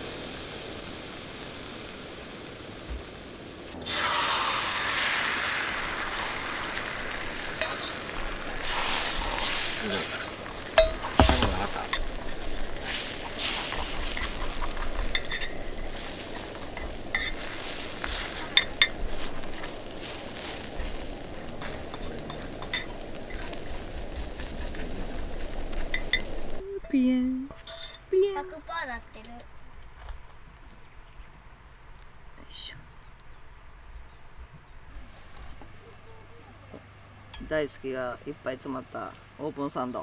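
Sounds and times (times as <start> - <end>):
food sizzling in pan: 0.0 - 29.2
utensil scraping pan: 7.6 - 26.6, 27.5 - 28.1.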